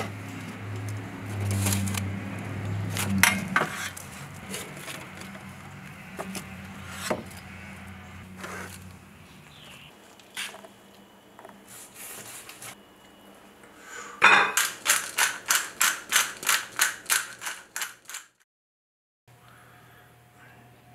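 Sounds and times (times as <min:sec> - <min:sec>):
pepper mill grinding: 0:14.6 - 0:18.3.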